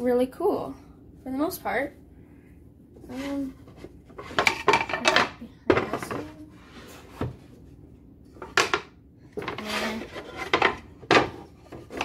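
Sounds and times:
kitchen items clattering on countertop: 3.5s - 6.4s, 8.4s - 12.0s.

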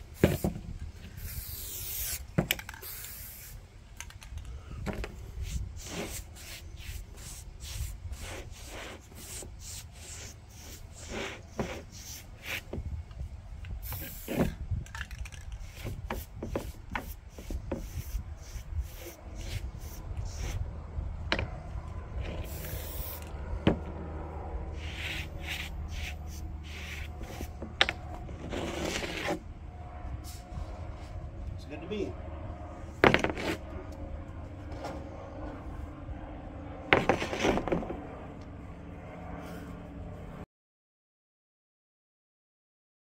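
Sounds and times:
paint brush scrubbing wood: 0.0s - 3.6s, 5.1s - 12.9s, 13.8s - 14.6s, 15.6s - 20.7s, 22.1s - 23.3s, 24.7s - 29.5s
spray paint can hissing: 1.1s - 3.6s, 5.4s - 12.7s, 13.8s - 14.5s, 15.5s - 20.6s, 22.4s - 23.3s, 24.8s - 27.5s.

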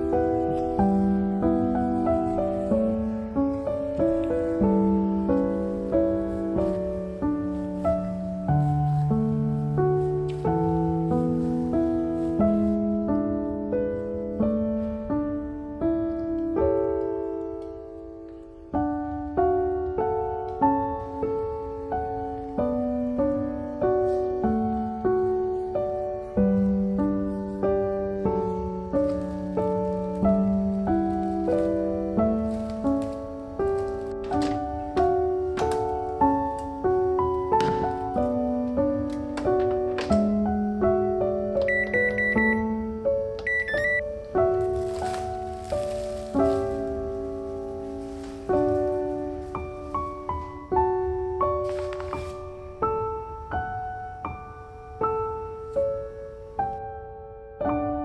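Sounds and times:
slow solo piano music: 0.0s - 58.0s.

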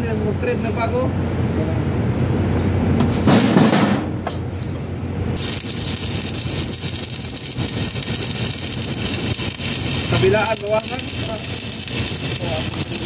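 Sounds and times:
welding arc crackling: 5.4s - 13.0s.

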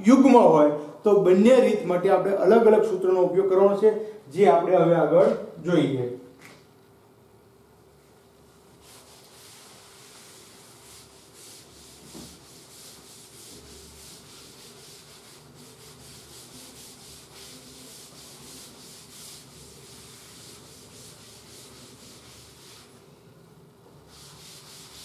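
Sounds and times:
duster rubbing blackboard: 8.8s - 23.0s, 24.0s - 25.0s.

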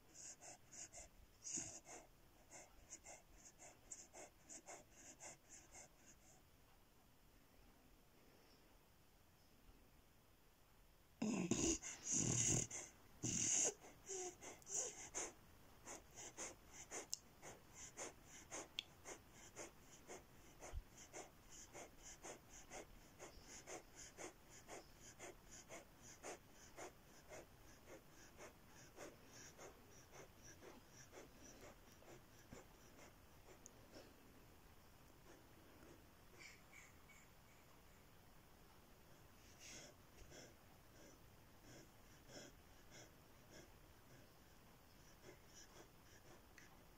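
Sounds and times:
puppy breathing in quick puffs: 13.7s - 34.0s.

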